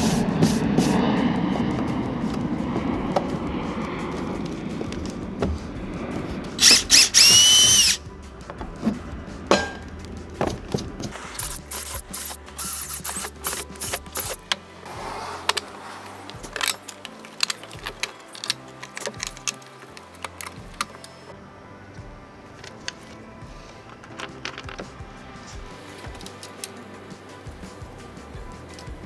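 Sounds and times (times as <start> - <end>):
cordless drill boring through wood: 6.6 - 8.0, 11.4 - 14.4.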